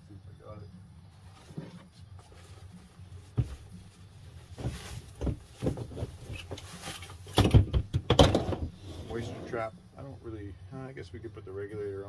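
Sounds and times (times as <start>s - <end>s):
plastic bag rustling and crinkling: 1.3s - 7.4s.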